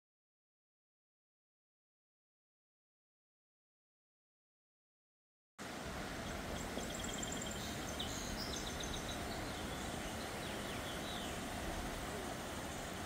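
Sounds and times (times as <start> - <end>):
rushing river water: 5.6 - 13.0
small birds chirping: 6.1 - 13.0.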